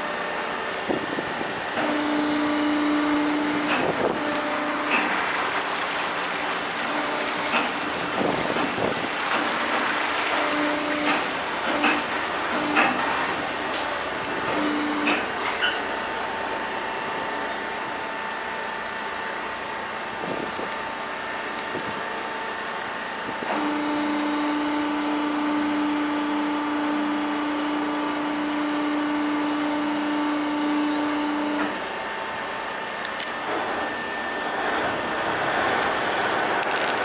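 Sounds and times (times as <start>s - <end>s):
ferry engine running: 0.0s - 37.0s
water wash: 0.0s - 37.0s
wind noise: 0.8s - 1.7s, 3.7s - 4.3s, 7.8s - 9.4s, 20.2s - 20.8s, 21.6s - 22.1s.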